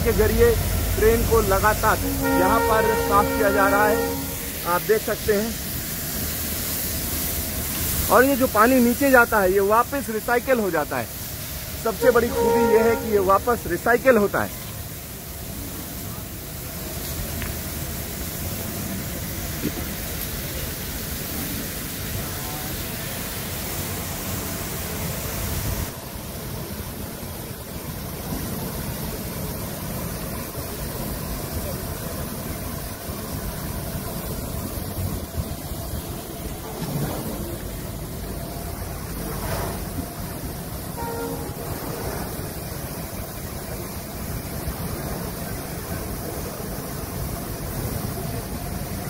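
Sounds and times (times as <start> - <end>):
high-pressure water jets spraying: 0.0 - 49.0.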